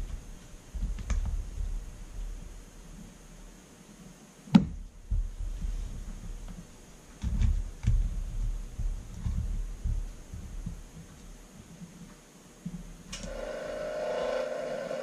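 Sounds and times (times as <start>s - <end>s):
gloved hands thumping and rubbing: 4.5s - 13.1s.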